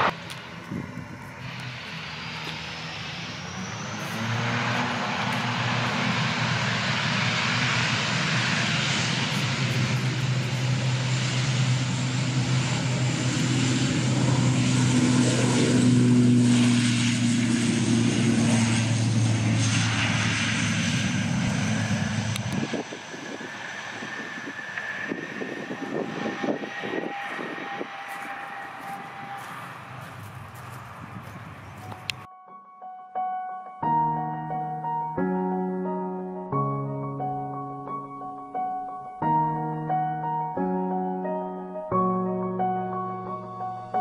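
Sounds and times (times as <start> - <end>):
propeller hum: 0.0 - 32.3
turbine whine: 0.0 - 32.3.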